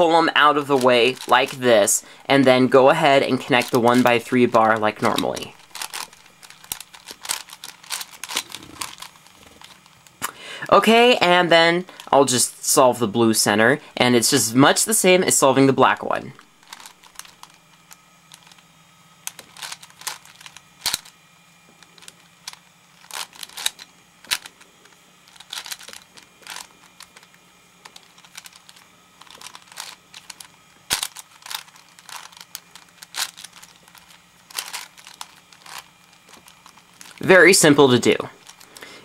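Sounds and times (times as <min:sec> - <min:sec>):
puzzle cube clicking: 0:03.5 - 0:09.8, 0:19.2 - 0:21.1, 0:25.3 - 0:37.2.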